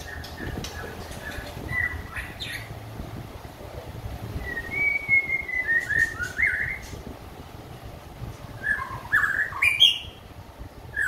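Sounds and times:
bird whistling song: 0:00.0 - 0:02.7, 0:04.3 - 0:07.0, 0:08.6 - 0:10.2.

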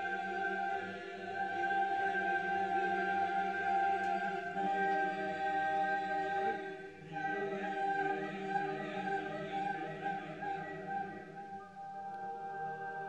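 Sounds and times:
choir singing a cappella: 0:00.0 - 0:13.0.

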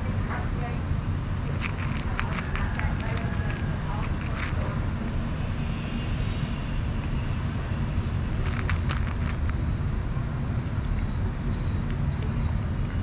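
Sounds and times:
steady low rumble: 0:00.0 - 0:13.0
cat crunching dry kibble: 0:01.4 - 0:05.7, 0:07.8 - 0:10.1.

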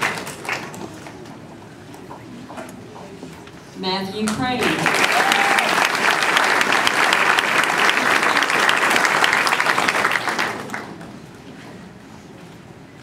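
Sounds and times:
audience applauding: 0:00.0 - 0:00.9, 0:04.6 - 0:11.0.

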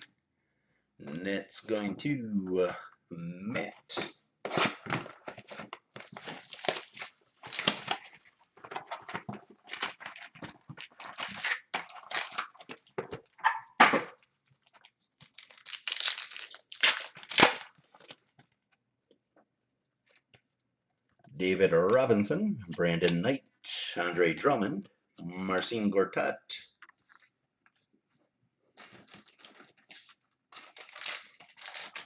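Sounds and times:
wrapper tearing and crinkling: 0:04.5 - 0:12.9, 0:14.2 - 0:18.3, 0:28.8 - 0:32.0.

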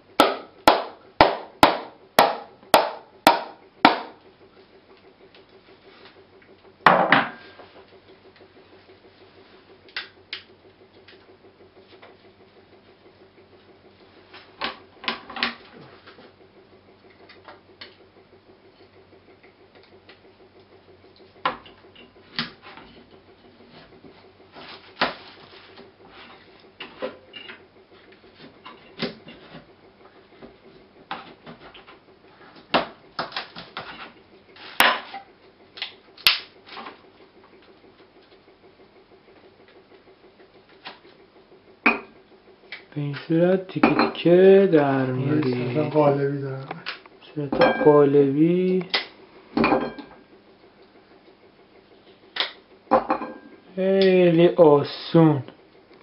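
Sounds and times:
coconut shell knocking: 0:00.2 - 0:04.2.

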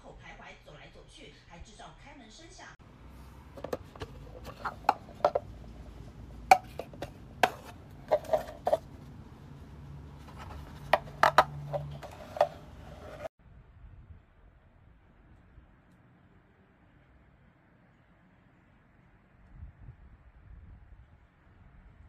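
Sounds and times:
plastic case clicking: 0:03.6 - 0:05.5, 0:06.5 - 0:08.8, 0:10.3 - 0:12.7.

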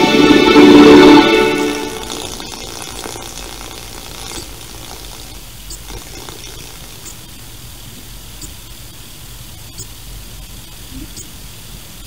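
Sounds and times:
bumper music: 0:00.0 - 0:02.4
tape hiss with faint crackling: 0:00.0 - 0:12.0.

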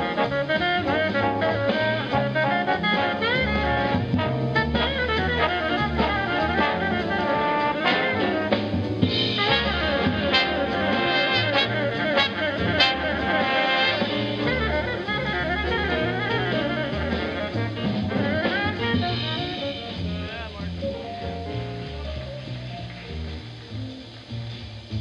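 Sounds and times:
alto saxophone: 0:00.0 - 0:25.0
big band jazz: 0:00.0 - 0:25.0.

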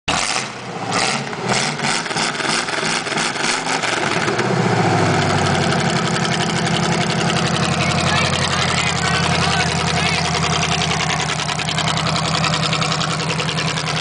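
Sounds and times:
unmuffled engine idling: 0:04.1 - 0:14.0.

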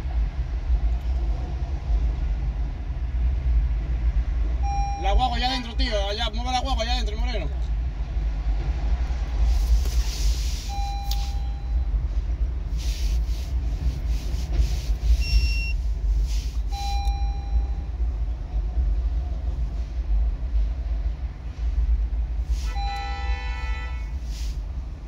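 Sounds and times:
steady low rumble: 0:00.0 - 0:25.0
electronic beeps: 0:04.6 - 0:05.2, 0:10.7 - 0:11.9, 0:15.2 - 0:15.8.

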